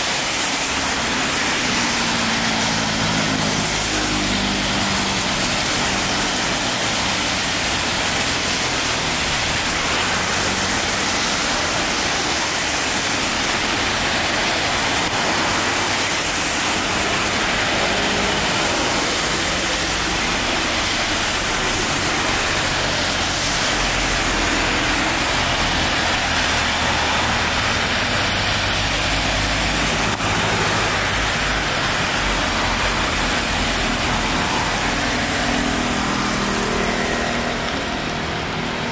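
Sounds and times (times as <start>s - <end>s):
car and bus engines running: 0.0s - 38.9s
tyres hissing on wet road: 0.0s - 38.9s.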